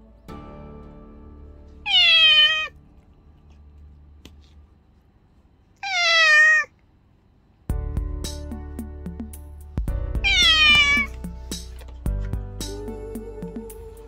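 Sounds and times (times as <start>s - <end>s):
faint background music: 0.0s - 5.1s, 7.6s - 14.0s
cat meowing: 1.9s - 2.8s, 5.8s - 6.8s, 10.2s - 11.1s.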